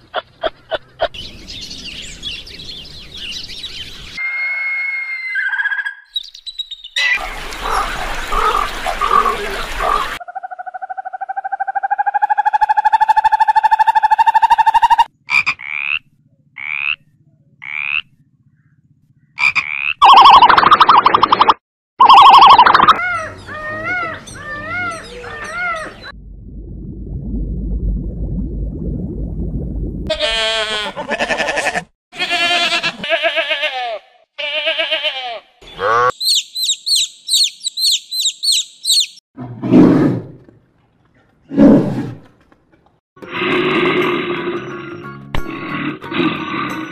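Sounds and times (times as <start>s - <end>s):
frog calling: 10.2s - 17.0s, 17.6s - 18.1s, 19.4s - 21.4s, 22.0s - 23.0s, 35.8s - 39.2s
high chirps: 20.0s - 23.0s, 36.1s - 39.2s
bear growls: 39.4s - 40.5s, 43.2s - 46.9s.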